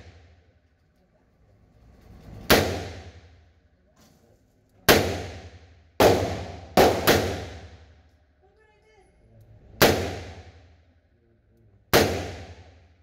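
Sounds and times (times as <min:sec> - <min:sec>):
revolver shots echoing: 0:02.4 - 0:03.3, 0:04.9 - 0:07.8, 0:09.8 - 0:10.6, 0:12.0 - 0:12.7.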